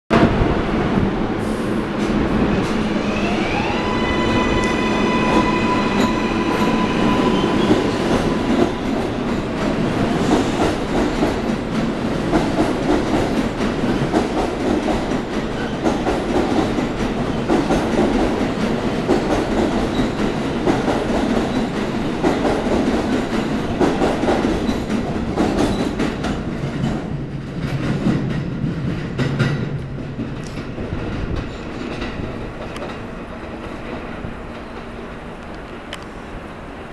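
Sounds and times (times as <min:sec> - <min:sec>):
rumble of train cars: 0:00.1 - 0:36.9
subway train motor whine: 0:01.2 - 0:09.9.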